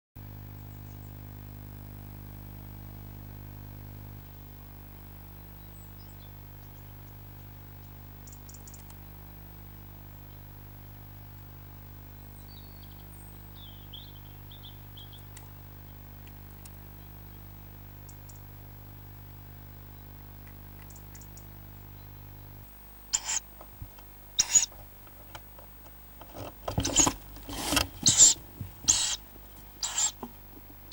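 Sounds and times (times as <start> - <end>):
low electrical hum: 0.2 - 30.9
faint ticks: 7.8 - 9.0, 18.0 - 18.5, 20.4 - 21.9
faint high chirps: 23.2 - 23.4, 29.8 - 30.2.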